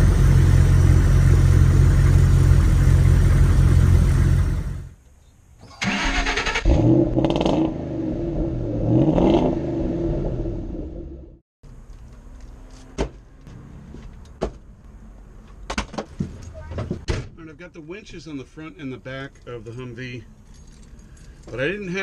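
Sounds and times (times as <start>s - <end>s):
loud steady engine: 0.0s - 4.9s.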